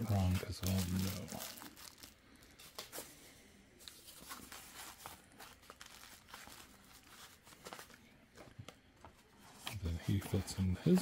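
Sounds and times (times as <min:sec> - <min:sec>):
plastic wrap crinkling: 0:00.0 - 0:03.0, 0:03.8 - 0:09.1.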